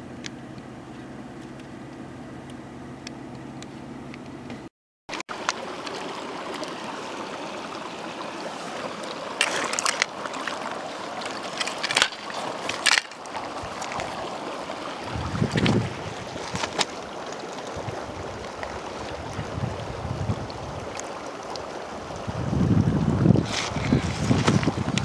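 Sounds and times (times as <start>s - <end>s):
steady low hum: 0.0s - 4.7s
stream running: 5.1s - 25.0s
mic handling rumble: 13.5s - 20.9s.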